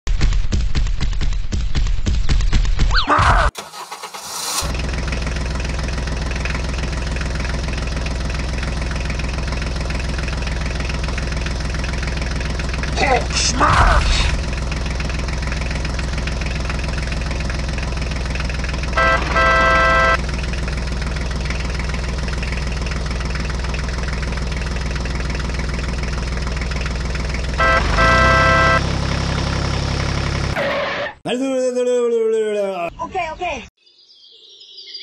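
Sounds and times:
tractor engine idling: 3.6 - 30.6
short steady pitched tone: 19.0 - 20.2, 27.6 - 29.0.

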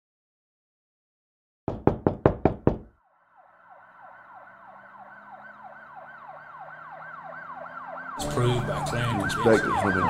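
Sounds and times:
loud sharp knocks: 1.7 - 2.9
siren wailing: 3.0 - 10.0.

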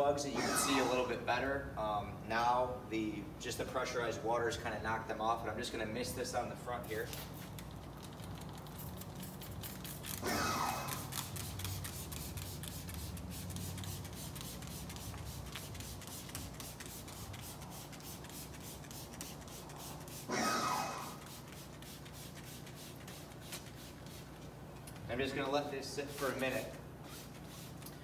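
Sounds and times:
spray bottle misting: 8.7 - 24.4, 26.2 - 28.0.

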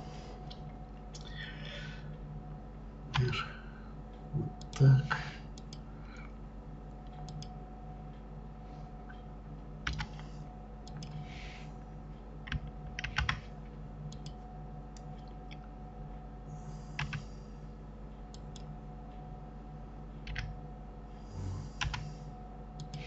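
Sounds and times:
faint steady hum: 0.0 - 23.0
keyboard and mouse clicks: 7.0 - 7.5, 9.8 - 11.3, 12.4 - 13.4, 14.1 - 15.7, 17.0 - 17.2, 18.3 - 18.7, 20.2 - 20.6, 21.8 - 22.1, 22.8 - 23.0.

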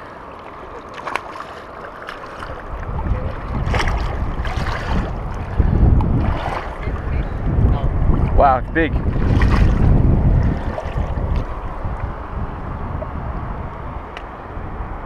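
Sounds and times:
fish splashing in water: 0.1 - 7.1, 9.0 - 12.1
wind buffeting microphone: 2.3 - 15.0.

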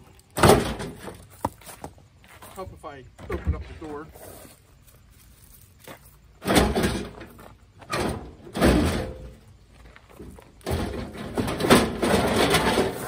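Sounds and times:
metal fender clunking and scraping: 0.3 - 1.6, 6.4 - 13.0.

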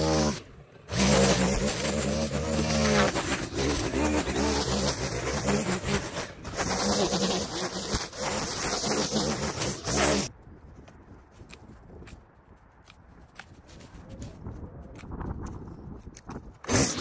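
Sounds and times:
small engine running: 0.0 - 10.3.

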